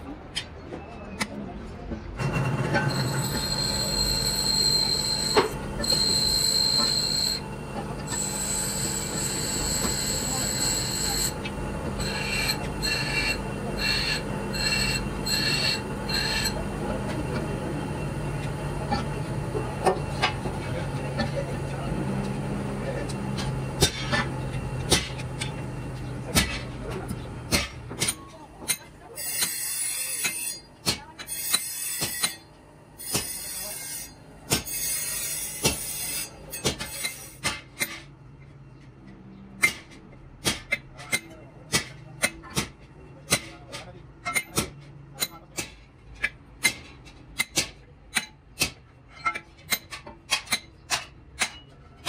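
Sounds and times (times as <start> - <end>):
low machine hum: 2.1 - 29.2
high-pitched whine: 2.8 - 22.0.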